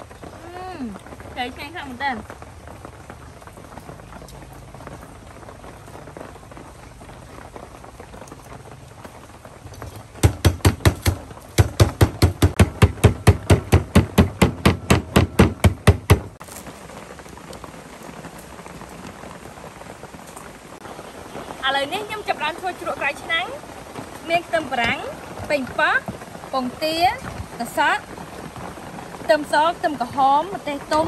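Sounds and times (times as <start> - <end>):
cleaver chopping on wooden board: 10.2 - 16.3.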